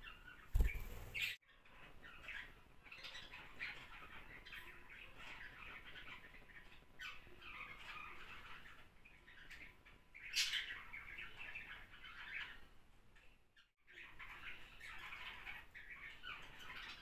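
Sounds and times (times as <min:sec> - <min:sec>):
budgerigars chirping: 0:00.0 - 0:12.6.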